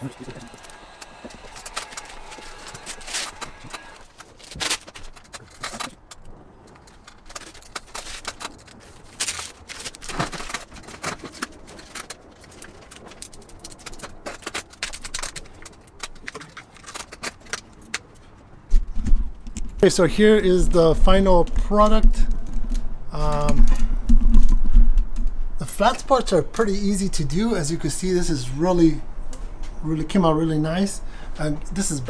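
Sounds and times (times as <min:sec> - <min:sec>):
vinyl film scraping and rustling: 0:00.0 - 0:19.7.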